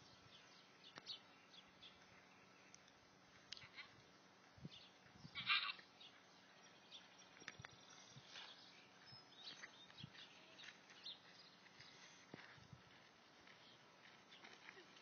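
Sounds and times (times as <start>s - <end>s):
faint ticks: 2.3s - 3.9s
high animal call: 5.3s - 5.8s.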